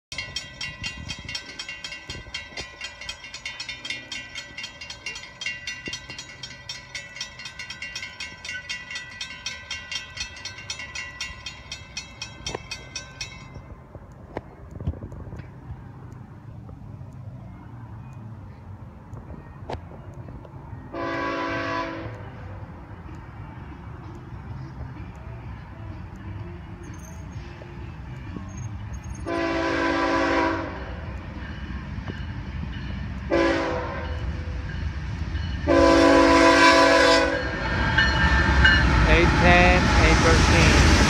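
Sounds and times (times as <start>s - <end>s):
crossing bells ringing rapidly: 0.1s - 13.9s, 26.4s - 41.0s
low rumble of freight train: 0.1s - 41.0s.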